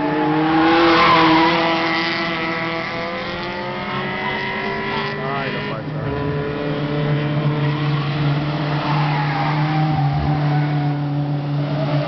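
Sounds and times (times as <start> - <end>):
race car passing at speed: 0.0 - 12.0
low engine drone: 4.8 - 7.7.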